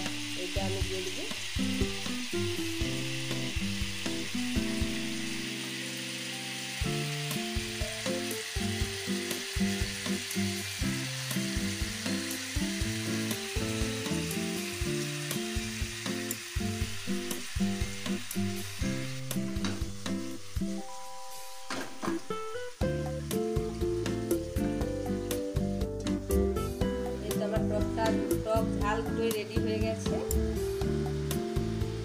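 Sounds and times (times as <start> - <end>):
fish sizzling in a pan: 0.0 - 32.0
melody of held notes: 20.8 - 28.0.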